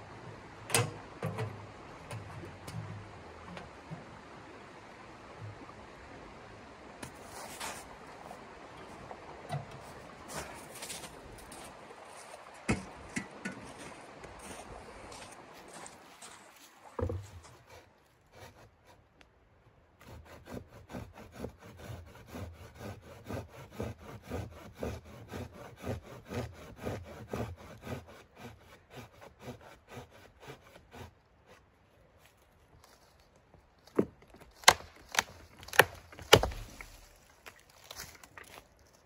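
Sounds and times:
hand saw cutting branch: 17.0s - 19.0s, 20.0s - 31.7s, 34.6s - 37.2s
wood snapping cracks: 34.5s - 38.6s.

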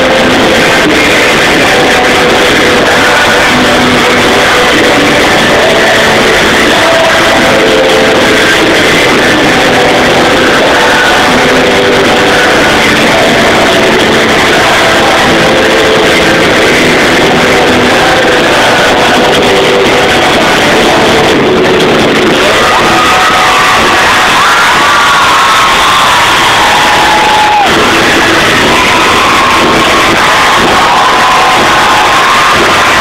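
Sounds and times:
rock band playing live: 0.0s - 33.0s.

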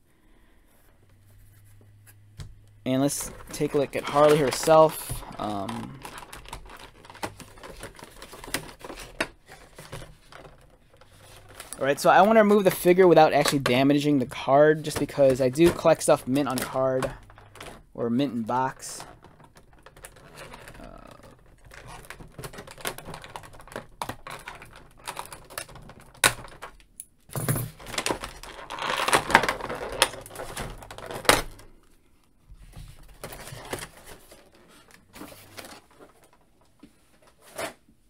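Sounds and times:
plastic packaging crinkling: 2.9s - 26.9s, 27.8s - 31.9s.

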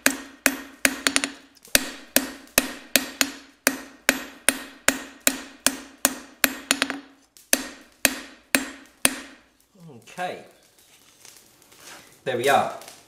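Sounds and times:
hammer striking steel on anvil: 0.0s - 9.4s.

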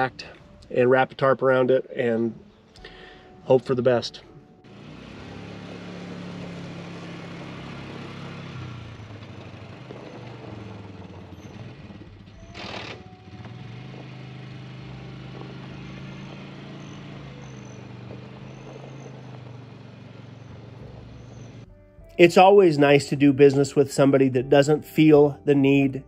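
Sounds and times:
vehicle engine running: 2.1s - 22.0s.

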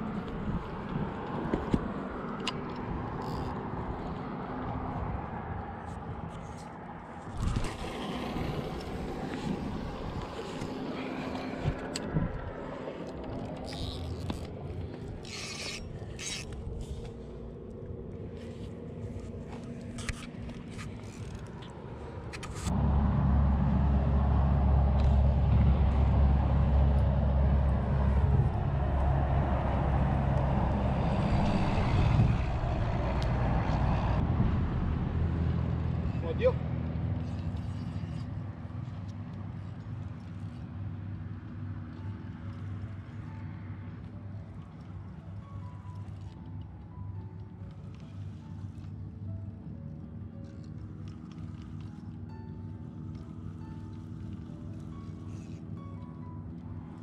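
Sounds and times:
road traffic rumble: 0.0s - 57.0s
fishing rod and reel clicks: 0.2s - 4.8s, 5.8s - 22.8s, 37.2s - 57.0s
low rumble: 15.8s - 39.9s.

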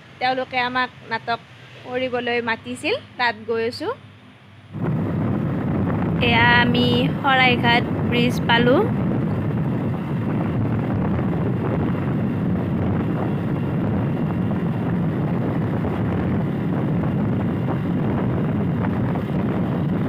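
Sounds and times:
vehicle road and wind noise: 0.0s - 20.0s
wind on microphone: 4.7s - 20.0s.

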